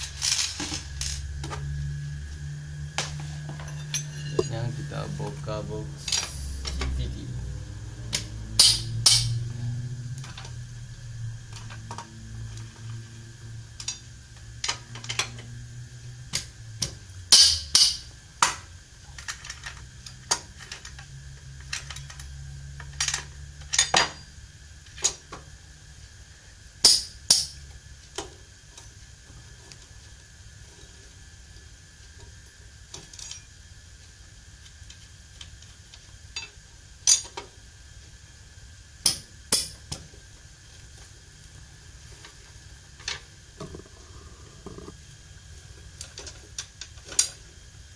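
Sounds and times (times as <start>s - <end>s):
metal hand tools clinking: 3.6s - 4.9s.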